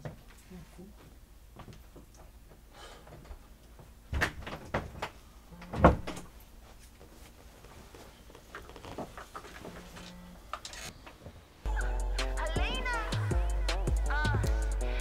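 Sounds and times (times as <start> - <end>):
door shutting with thump: 5.7 - 6.3.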